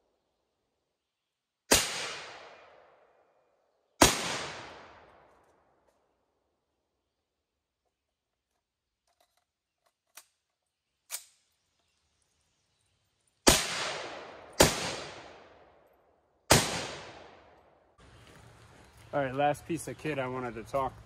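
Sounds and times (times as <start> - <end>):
rifle shots echoing: 1.7 - 3.0, 4.0 - 5.3, 13.4 - 15.8, 16.5 - 17.7.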